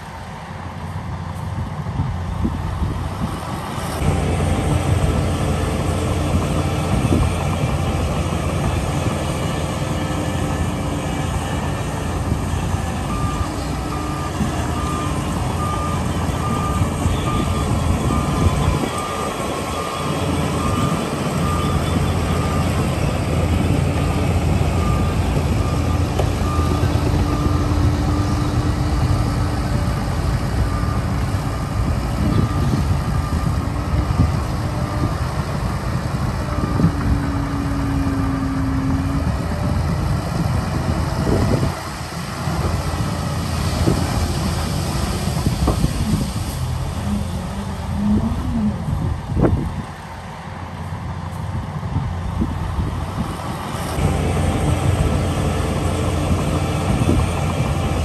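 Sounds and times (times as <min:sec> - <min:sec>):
heavy diesel engines droning: 0:00.0 - 0:58.0
reversing beeper: 0:09.4 - 0:31.6.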